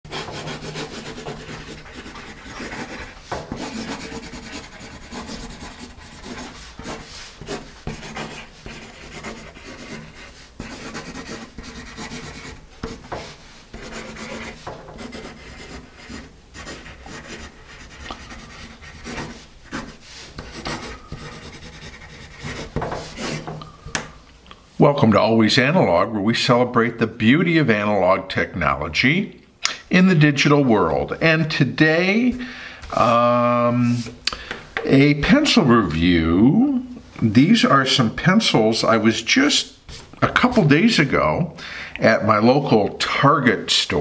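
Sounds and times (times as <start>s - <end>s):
pencil scratching on paper: 0.1s - 23.6s.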